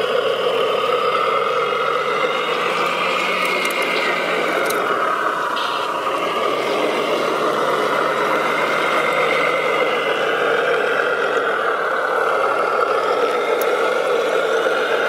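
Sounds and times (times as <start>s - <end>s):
toy truck motor whirring: 0.0s - 15.0s.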